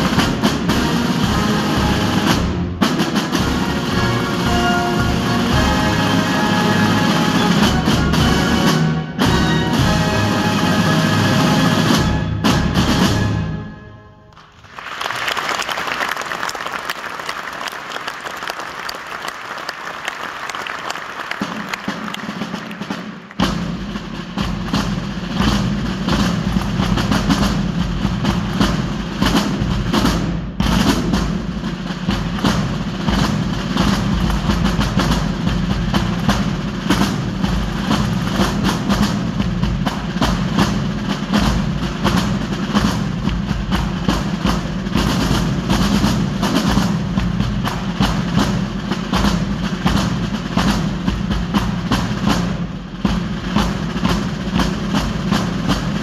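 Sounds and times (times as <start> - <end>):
side drums playing: 0.0 - 13.9, 21.2 - 56.0.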